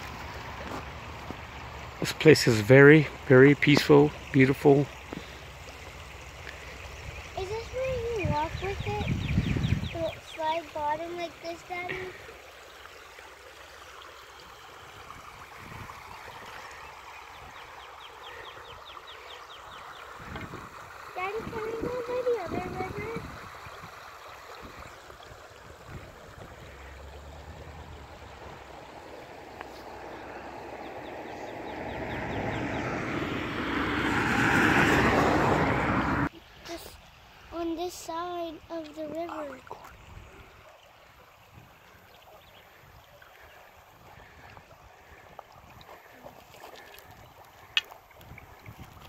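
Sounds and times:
creek water running: 0:00.0 - 0:49.0
vehicle approaching: 0:25.2 - 0:36.3.

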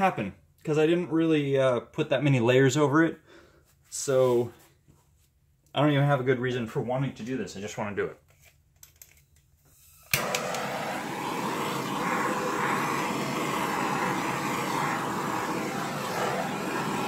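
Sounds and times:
gas torch flame hissing: 0:10.1 - 0:17.0
gas torch ignition click: 0:10.1 - 0:17.0.

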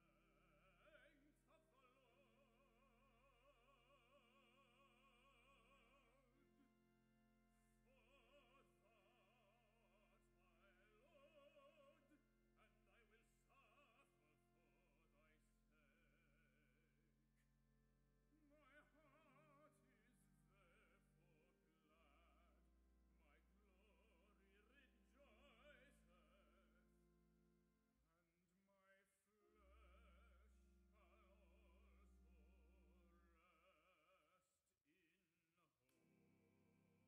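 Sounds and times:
man singing with vibrato: 0:00.0 - 0:06.7, 0:07.6 - 0:16.7, 0:18.4 - 0:22.4, 0:23.2 - 0:26.8
low organ pedal notes: 0:00.0 - 0:16.8, 0:18.2 - 0:27.8
pipe organ chords: 0:00.0 - 0:28.2, 0:28.8 - 0:33.8.

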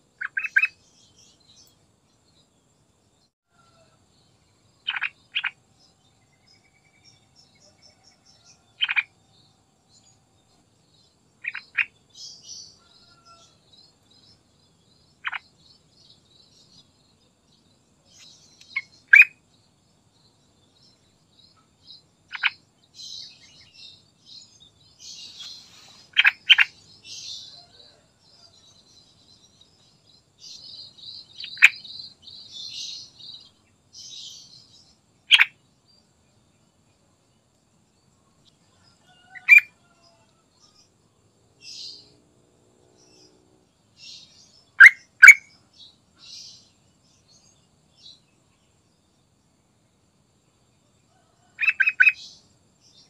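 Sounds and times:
faint high-pitched twittering: 0:00.0 - 0:53.0.

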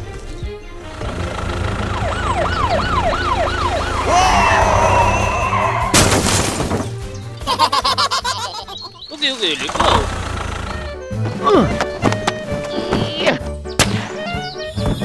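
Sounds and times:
low background music: 0:00.0 - 0:15.0
police siren yelping: 0:01.5 - 0:06.0
toy truck crashing: 0:05.9 - 0:07.1.

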